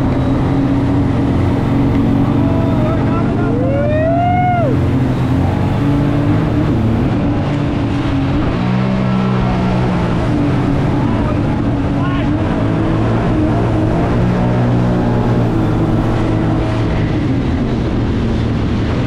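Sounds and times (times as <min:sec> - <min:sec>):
boat engine running: 0:00.0 - 0:19.0
person whooping: 0:02.4 - 0:04.8.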